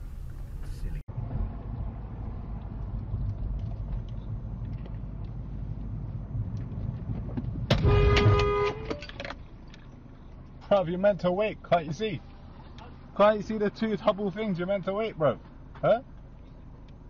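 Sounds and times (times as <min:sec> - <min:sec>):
engine hum and road noise: 0:00.0 - 0:17.0
car horn blast: 0:07.7 - 0:09.1.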